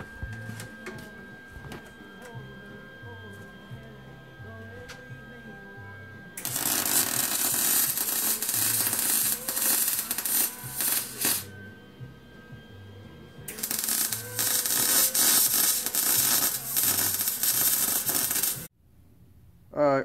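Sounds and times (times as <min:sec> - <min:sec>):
welder arc crackling: 0:06.4 - 0:11.5, 0:13.5 - 0:18.7.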